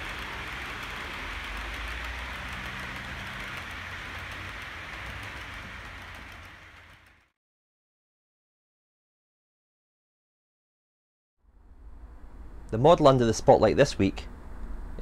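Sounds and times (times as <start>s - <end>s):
low motor hum: 0.0s - 7.3s
model train wheels rumbling: 0.0s - 7.3s.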